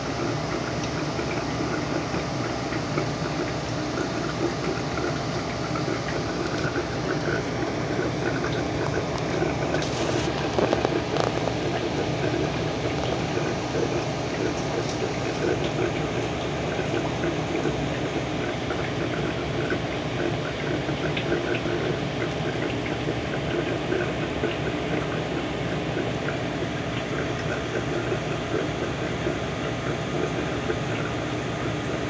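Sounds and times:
aquarium water bubbling: 0.0s - 32.0s.

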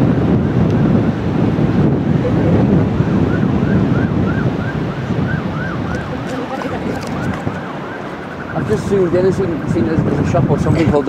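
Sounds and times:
wind buffeting microphone: 0.0s - 11.0s
faint siren yelping: 3.1s - 11.0s.

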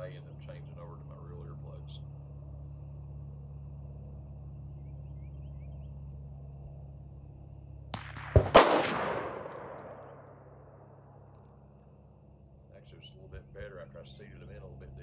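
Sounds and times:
gunshot with rumble: 7.9s - 10.6s.

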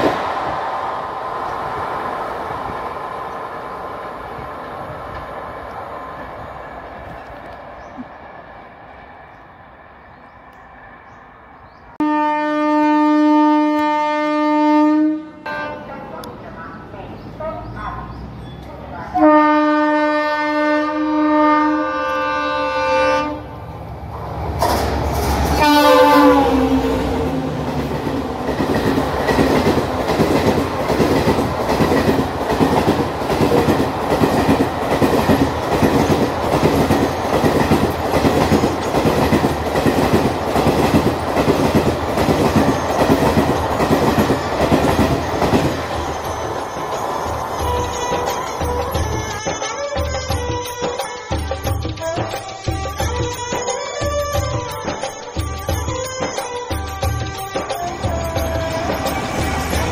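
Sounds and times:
diesel locomotive horn blast: 12.0s - 16.2s, 19.1s - 23.6s, 25.5s - 27.6s
train wheels clacking over rail joints: 24.5s - 26.4s, 27.6s - 59.9s.

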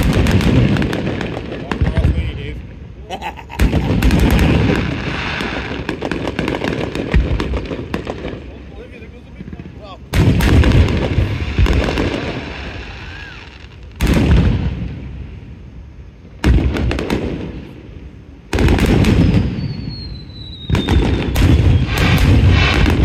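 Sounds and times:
fireworks booming: 0.0s - 23.0s
fireworks crackling and rumbling: 0.0s - 23.0s
thin falling whistle: 19.2s - 21.9s.

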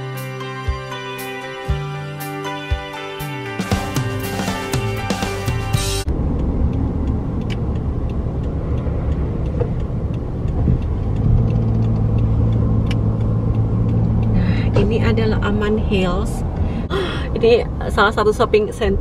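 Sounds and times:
background music: 0.0s - 6.1s
steady engine hum: 3.8s - 19.0s
low rumble of moving car: 6.0s - 19.0s.

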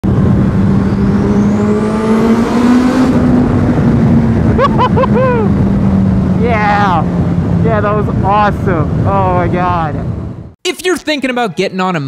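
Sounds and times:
high climbing whine: 0.0s - 10.6s
loud steady rush: 0.0s - 10.6s
motorcycle engine accelerating: 0.0s - 10.6s
rider whooping: 4.4s - 5.8s.

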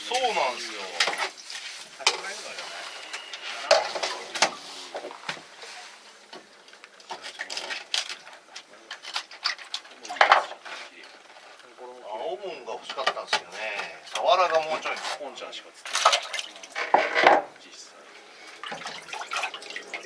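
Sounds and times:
faint voices: 2.0s - 12.0s
clicks and knocks on hard surface: 6.3s - 10.6s, 16.8s - 17.6s.

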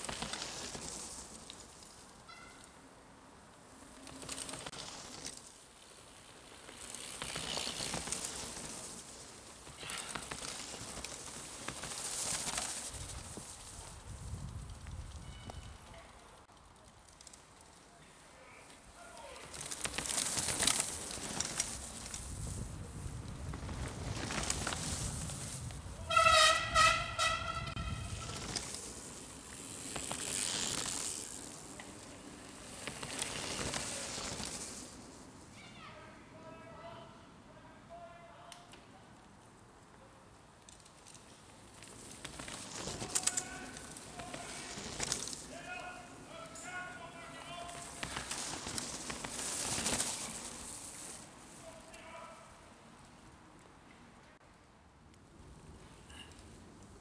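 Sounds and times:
bike tyres crackling on trail: 0.0s - 35.9s, 36.5s - 57.0s
bike clicks and rattles: 3.7s - 17.9s, 19.4s - 25.8s, 27.2s - 34.9s, 40.5s - 45.5s, 47.6s - 51.2s.

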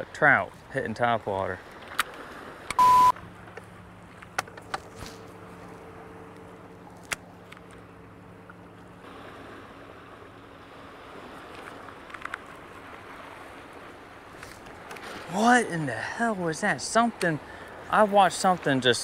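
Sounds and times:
small waves against boat hull: 0.0s - 15.8s
wind: 0.0s - 19.0s
electric trolling motor hum: 2.8s - 14.9s.

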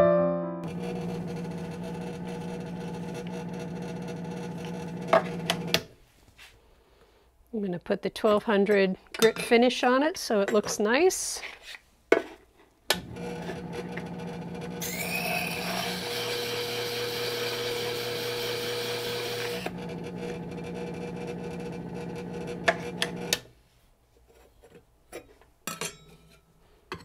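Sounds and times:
powered hone humming: 0.6s - 5.7s, 13.0s - 23.3s
tool grinding on disk: 0.7s - 5.8s, 13.0s - 23.4s.

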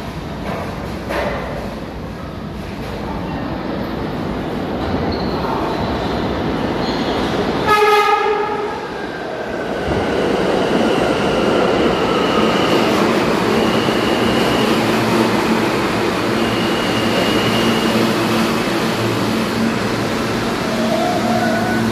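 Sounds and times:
train wheels rumbling on rail: 0.0s - 21.9s
high train whine: 3.6s - 21.9s
subway train horn blast: 7.6s - 9.0s.

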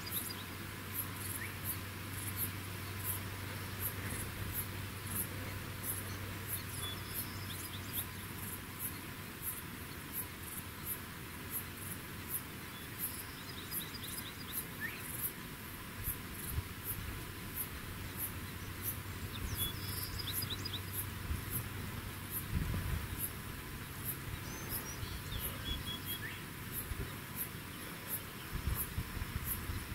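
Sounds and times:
faint chirps: 0.0s - 11.0s, 18.1s - 21.7s, 22.3s - 29.9s.

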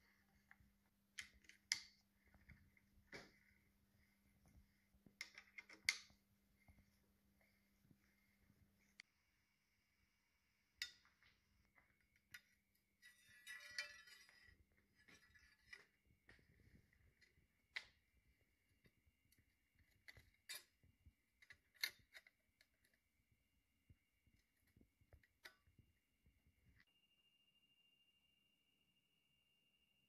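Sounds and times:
metal parts and tools clinking: 5.1s - 6.2s, 10.8s - 18.0s, 19.4s - 23.0s
metal parts rattling: 13.0s - 16.0s.

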